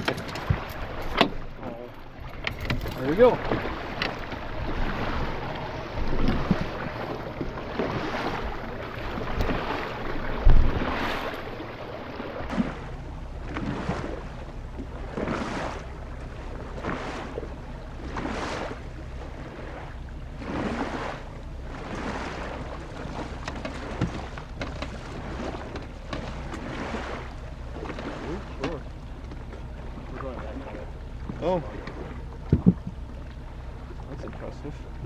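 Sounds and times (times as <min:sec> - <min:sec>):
small waves slapping a boat hull: 0:00.0 - 0:35.0
wind on microphone: 0:02.2 - 0:12.8
low thump: 0:10.4 - 0:10.8, 0:32.4 - 0:33.0.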